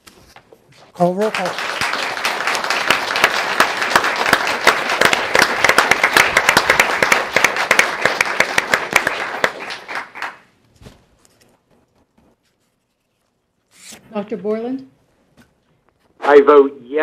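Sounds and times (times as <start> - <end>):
audience applauding: 1.0 - 10.6.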